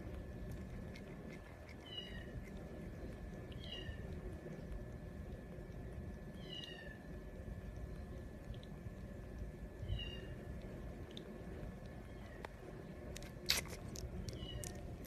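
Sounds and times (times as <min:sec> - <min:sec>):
kitten mewing: 0:13.4 - 0:15.0.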